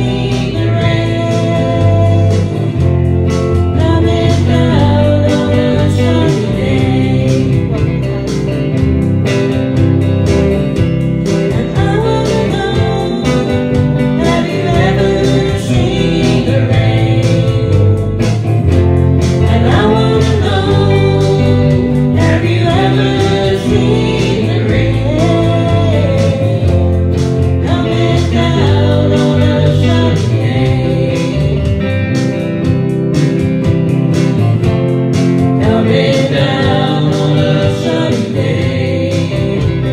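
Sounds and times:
person singing over band: 0.0s - 3.0s, 3.7s - 8.5s, 11.5s - 18.4s, 19.4s - 32.0s, 35.6s - 39.9s.

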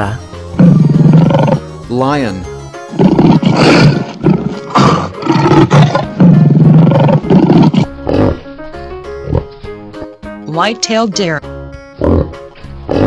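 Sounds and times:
light background music: 0.0s - 13.0s
lion roaring: 0.6s - 1.6s, 2.9s - 8.4s, 12.0s - 13.0s.

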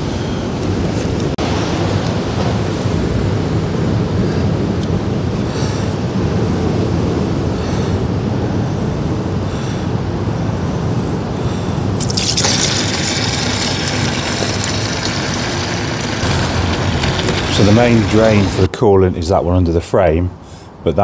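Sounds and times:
coolant pouring into tray: 12.0s - 18.7s
low rumble: 14.2s - 18.7s.

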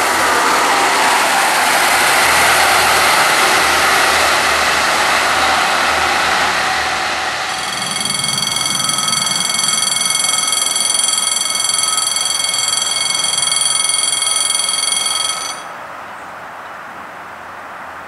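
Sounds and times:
train approaching: 0.0s - 15.9s
railway electronic warning bell: 1.7s - 15.8s.

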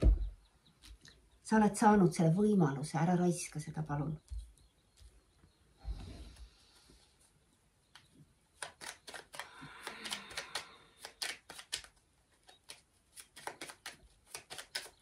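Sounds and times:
cards being shuffled: 8.6s - 15.0s.

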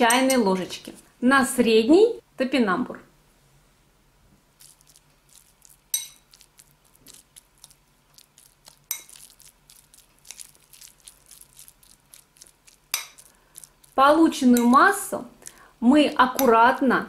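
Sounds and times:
spoon stirring in glass bowl: 4.6s - 15.6s
spoon clinking against glass: 5.9s - 6.4s, 8.9s - 9.3s, 12.9s - 13.3s.

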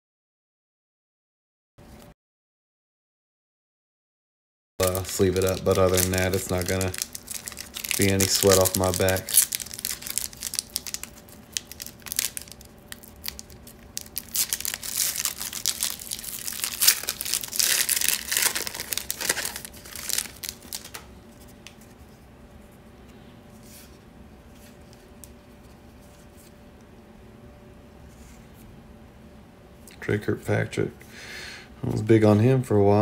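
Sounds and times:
foil wrapper crinkling: 4.8s - 22.0s.

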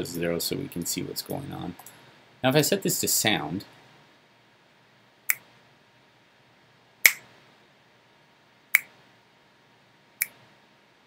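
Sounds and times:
finger snaps: 5.3s - 5.5s, 7.0s - 7.3s, 10.2s - 10.4s.

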